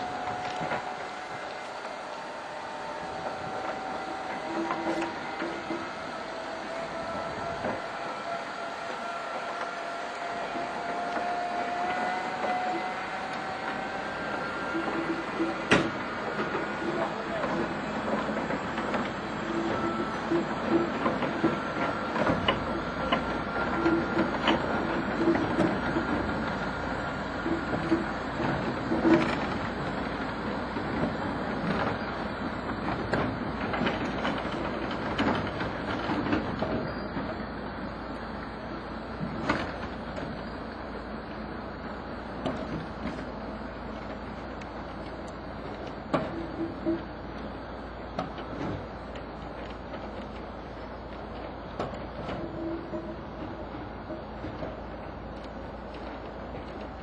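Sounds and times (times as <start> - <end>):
thin rising whine: 0.0 - 28.4
locomotive rolling noise: 0.0 - 57.0
wheels clicking on rails: 0.0 - 57.0.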